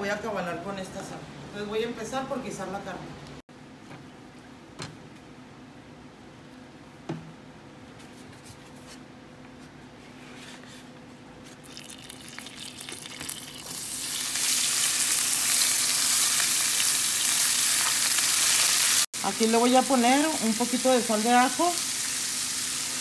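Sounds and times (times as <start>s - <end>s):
meat sizzling in oil: 11.7s - 23.0s.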